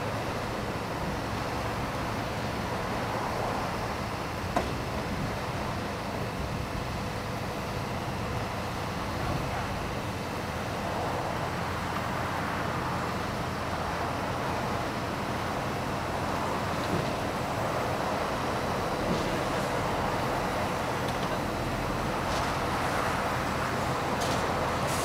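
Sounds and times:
diesel engines of paving machinery: 0:00.0 - 0:25.0.

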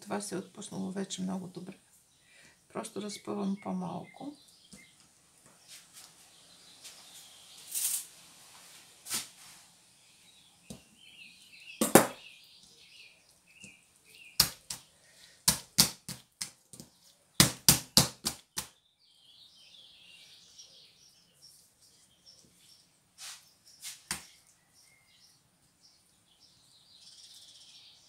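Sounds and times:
hands slapping dough on oilcloth: 0:14.4 - 0:18.7, 0:23.2 - 0:24.4.

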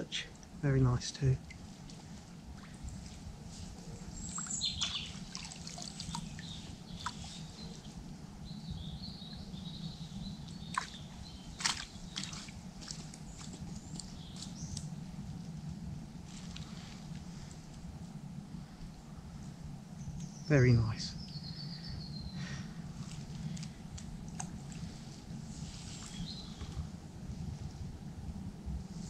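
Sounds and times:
faint birds chirping: 0:00.0 - 0:29.0
water splashing and dripping: 0:04.2 - 0:07.2, 0:10.6 - 0:11.0, 0:11.6 - 0:14.5.

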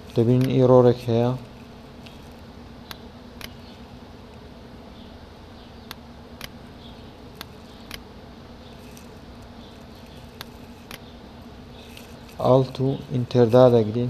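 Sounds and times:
low electrical hum and hiss: 0:00.0 - 0:14.0
computer mouse clicks: 0:10.3 - 0:11.1.

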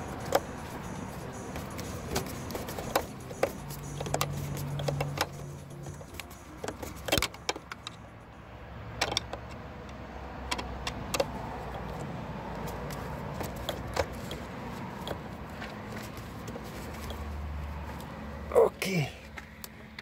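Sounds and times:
steady low hum: 0:00.0 - 0:06.6.

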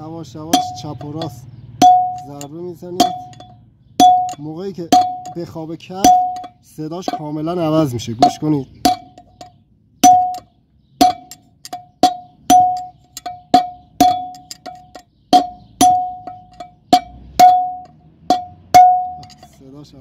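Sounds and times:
hammer striking steel: 0:00.6 - 0:05.4, 0:06.0 - 0:07.3, 0:08.2 - 0:19.5.

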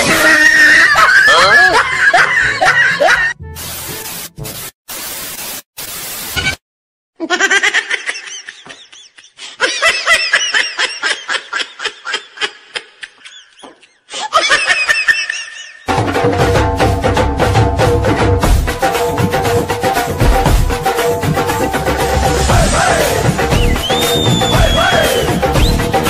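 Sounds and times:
high giggling laughter: 0:00.4 - 0:03.4, 0:07.2 - 0:15.9
hissing noise: 0:03.6 - 0:06.6.

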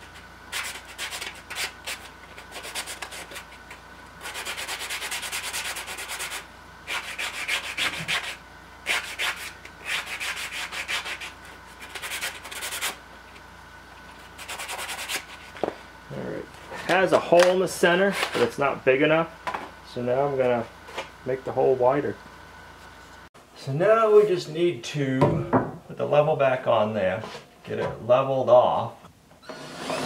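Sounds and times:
wood scratching on sanding block: 0:00.0 - 0:13.0, 0:14.2 - 0:15.6.

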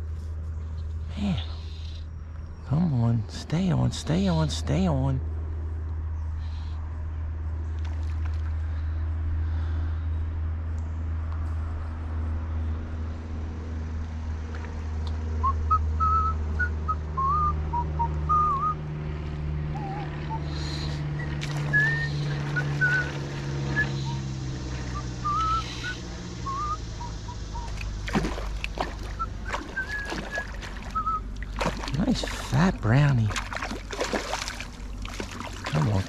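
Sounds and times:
low drone: 0:00.0 - 0:36.0
fish thrashing and splashing: 0:07.8 - 0:08.8, 0:19.8 - 0:24.4, 0:27.6 - 0:36.0
short wavering whistled notes: 0:19.8 - 0:24.3, 0:24.9 - 0:27.8, 0:29.2 - 0:31.2.

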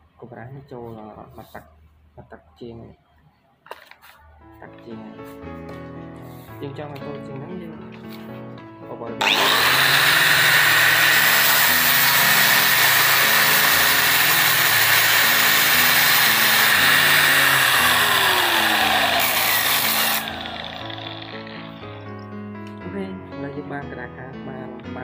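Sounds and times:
angle grinder whining: 0:09.2 - 0:22.2.

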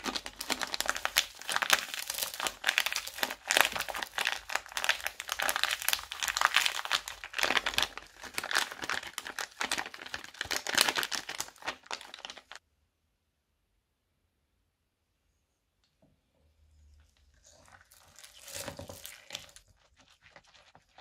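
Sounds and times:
plastic bags crinkling: 0:00.0 - 0:12.6, 0:18.0 - 0:19.6.

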